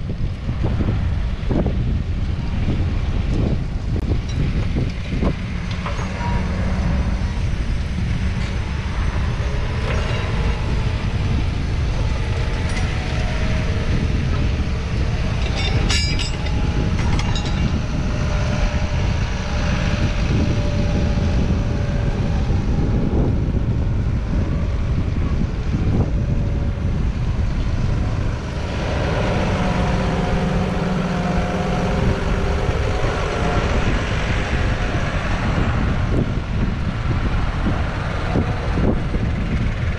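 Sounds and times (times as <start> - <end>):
tractor diesel engine under load: 0.0 - 39.9
metallic clatter: 4.2 - 18.3.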